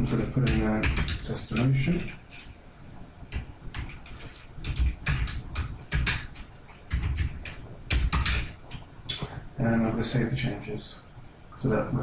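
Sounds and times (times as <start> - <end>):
keyboard typing clicks: 3.3 - 9.2.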